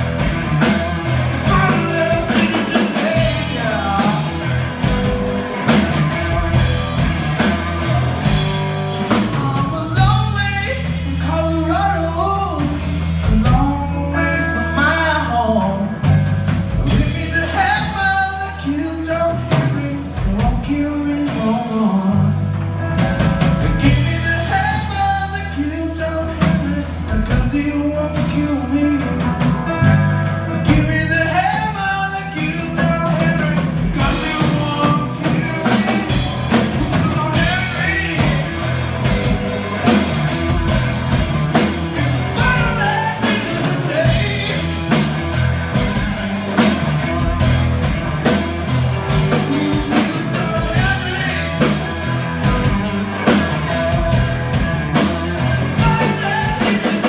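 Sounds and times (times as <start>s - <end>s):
drum kit: 0.0s - 57.0s
electric bass line: 0.0s - 57.0s
electric guitar: 0.0s - 57.0s
person singing: 1.4s - 22.6s, 23.4s - 40.7s, 41.5s - 45.4s, 49.0s - 57.0s.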